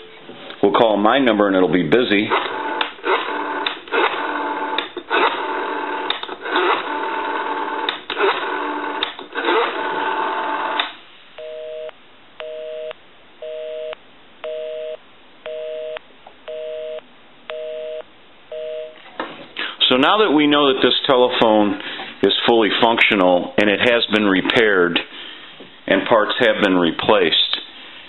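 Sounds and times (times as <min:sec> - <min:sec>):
telephone busy signal: 0:11.4 - 0:19.0
telephone line tones: 0:11.4 - 0:19.0.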